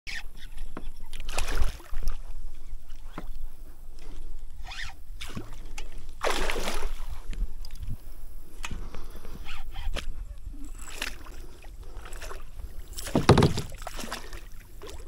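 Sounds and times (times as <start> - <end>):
fish thrashing at water surface: 5.2 - 7.2, 10.7 - 15.0
loud splash: 6.2 - 7.0
gear knocking against kayak: 13.0 - 14.0.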